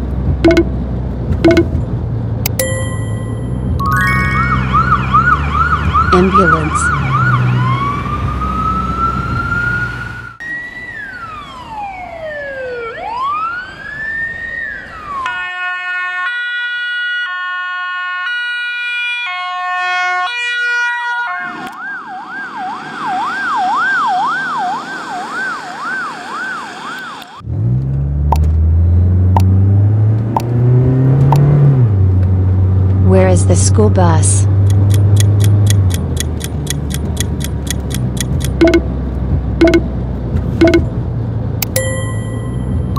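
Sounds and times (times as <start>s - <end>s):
ambulance siren: 3.8s - 27.4s
vehicle engine running: 33.5s - 41.2s.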